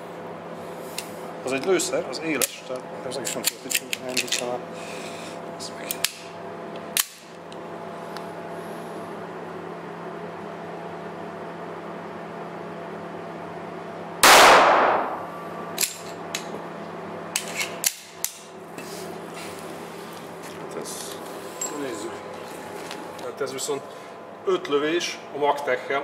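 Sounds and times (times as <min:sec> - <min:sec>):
pistol handling clicks: 0:03.3 - 0:04.4, 0:07.0 - 0:07.3, 0:15.8 - 0:16.5, 0:17.4 - 0:18.4
pistol shot with echo: 0:14.2 - 0:15.2.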